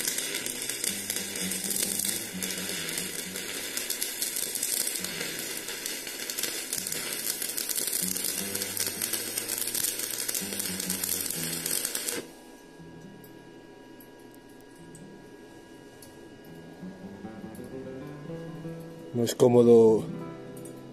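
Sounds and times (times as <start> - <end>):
welding arc crackling: 0.0 - 12.3.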